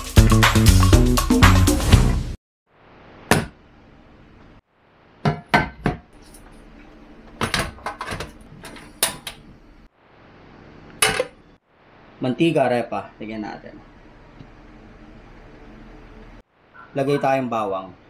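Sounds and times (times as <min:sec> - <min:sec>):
low room hiss: 0:09.6 - 0:18.0.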